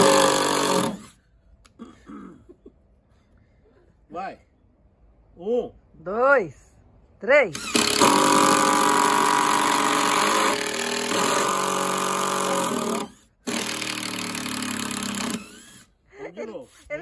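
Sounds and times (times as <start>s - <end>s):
impact drivers driving screws into wood: 0.0s - 1.2s, 7.5s - 15.9s.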